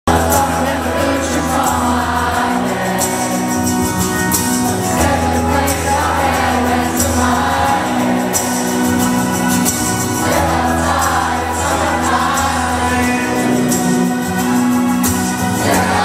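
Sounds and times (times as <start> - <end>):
man singing lead: 0.1 - 4.0, 10.2 - 16.0
crowd singing along: 0.1 - 16.0
rock band playing live: 0.1 - 16.0.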